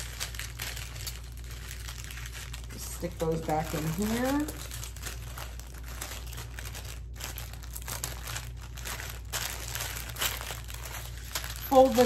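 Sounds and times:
plastic bags crinkling: 0.0 - 12.0.

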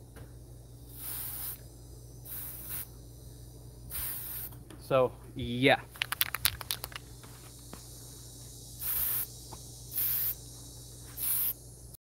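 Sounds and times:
aerosol spray can hissing: 0.9 - 3.1, 3.9 - 4.6, 6.0 - 11.9.

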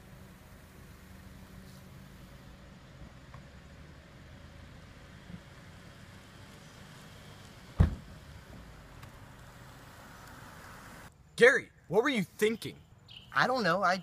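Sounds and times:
loud sharp thump: 7.8 - 8.1.

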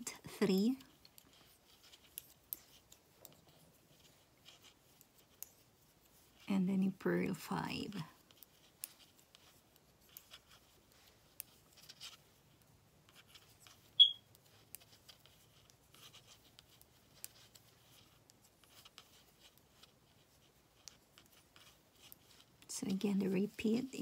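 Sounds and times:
knitting needles clicking: 0.7 - 6.5, 7.9 - 24.0
sharp high-pitched ping: 14.0 - 14.2.

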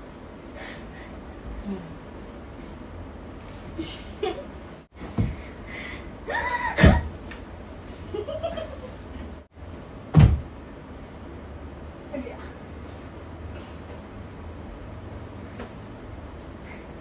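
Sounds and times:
girl laughing: 3.8 - 4.6, 6.3 - 7.1, 8.1 - 9.2
thumps from jumping: 5.0 - 5.5, 6.8 - 7.1, 10.1 - 10.6.

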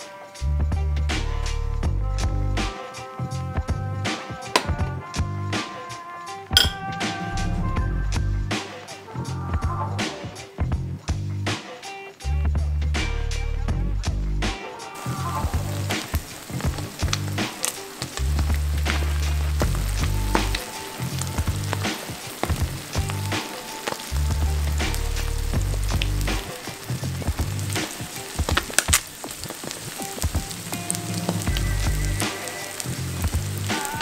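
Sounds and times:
background music with bass: 0.0 - 29.0, 29.9 - 34.0
fritter sizzling in hot oil: 15.0 - 34.0
oil popping: 15.0 - 34.0.

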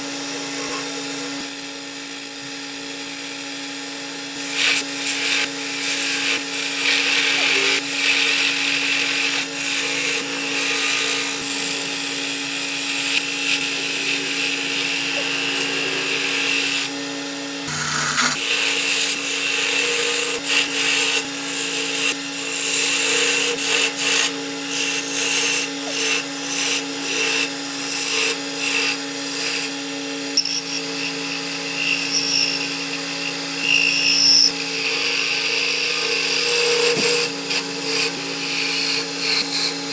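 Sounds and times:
wood lathe humming: 0.0 - 39.9
turning tool scraping wood: 4.3 - 17.0, 17.6 - 29.8, 30.4 - 39.9.

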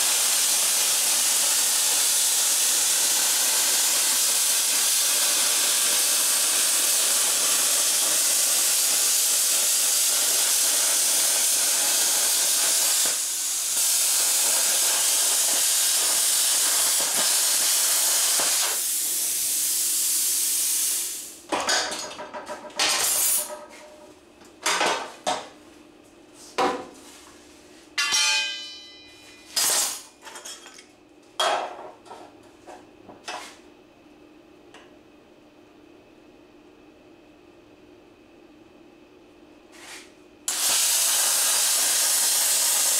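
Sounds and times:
plasma cutter hissing: 0.0 - 21.4, 23.0 - 23.5, 40.5 - 42.9
metal clanks and scrapes: 22.1 - 24.1.

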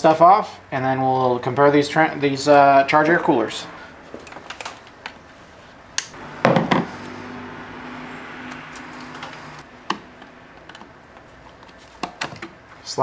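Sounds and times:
tools clicking and clanking: 8.5 - 12.8.

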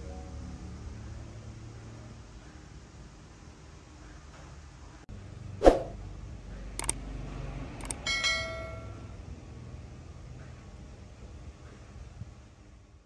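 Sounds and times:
sharp clicks: 6.8 - 7.0, 7.8 - 8.0
short metallic ring: 7.8 - 9.2.

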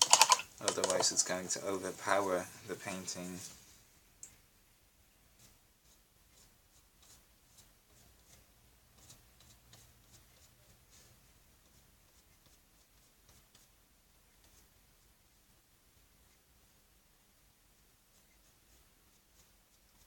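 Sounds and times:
paintbrush scratchy strokes: 5.2 - 20.0.

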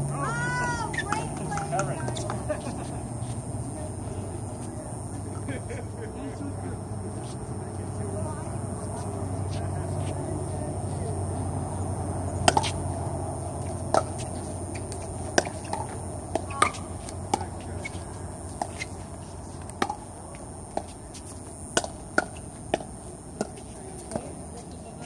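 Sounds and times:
paddles hitting plastic ball: 21.7 - 24.3.

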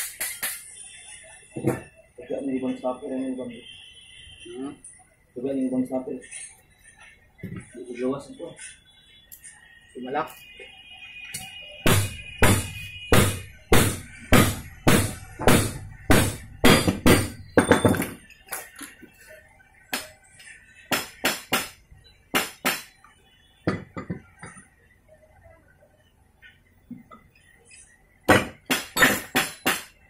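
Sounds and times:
hammer striking steel pipe: 11.9 - 18.1, 20.9 - 21.8, 28.3 - 29.9.

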